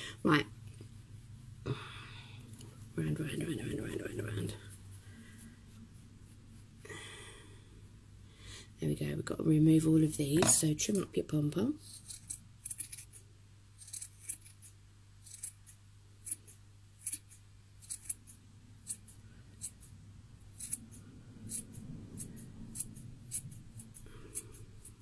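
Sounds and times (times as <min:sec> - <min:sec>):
scissors snipping yarn: 0:11.8 - 0:13.2, 0:13.8 - 0:19.9, 0:20.5 - 0:25.0.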